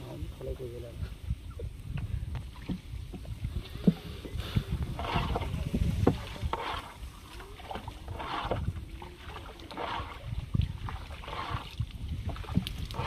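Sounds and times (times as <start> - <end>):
paddle swishing water: 1.5 - 13.0
wooden boat knocks and thumps: 1.6 - 7.0, 9.4 - 13.0.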